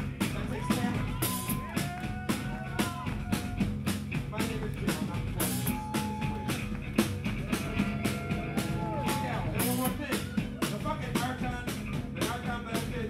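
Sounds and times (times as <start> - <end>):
drum kit steady beat: 0.0 - 13.0.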